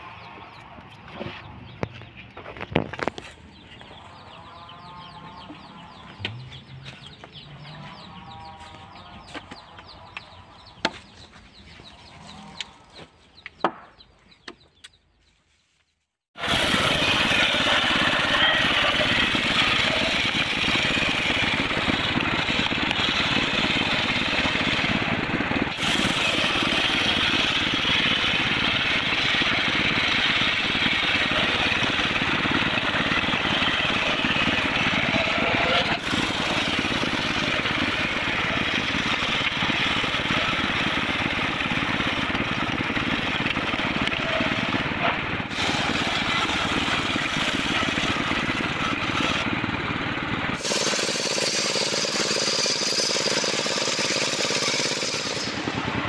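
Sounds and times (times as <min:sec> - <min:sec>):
chickens clucking: 0:00.1 - 0:14.9
circular saw machine running: 0:16.4 - 0:56.0.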